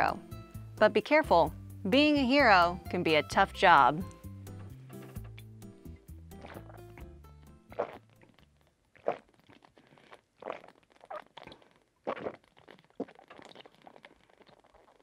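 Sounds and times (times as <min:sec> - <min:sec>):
person gulping a drink: 0:06.3 - 0:15.0.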